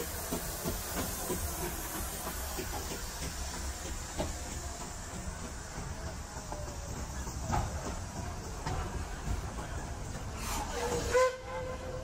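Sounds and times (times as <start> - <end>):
steam train rumbling and hissing: 0.0 - 12.0.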